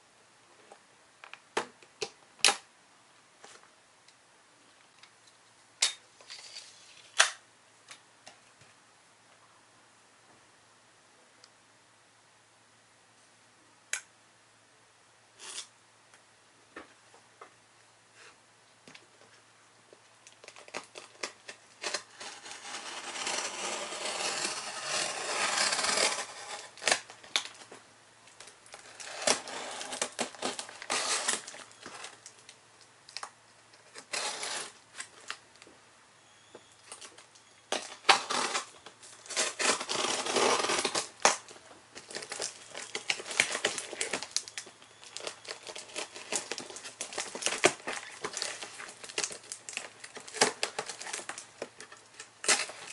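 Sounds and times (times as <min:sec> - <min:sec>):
plastic tape crinkling and tearing: 0:20.2 - 0:27.7, 0:28.3 - 0:35.4, 0:36.9 - 0:52.9.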